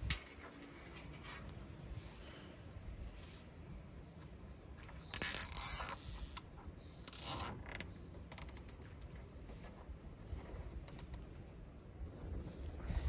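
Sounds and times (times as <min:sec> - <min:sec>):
cable ties ratcheting tight: 0:05.1 - 0:09.0, 0:10.8 - 0:11.2.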